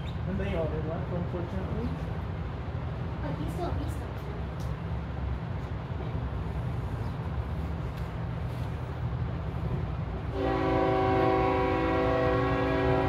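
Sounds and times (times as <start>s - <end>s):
low train rumble: 0.0s - 13.0s
locomotive air horn chord: 10.3s - 13.0s.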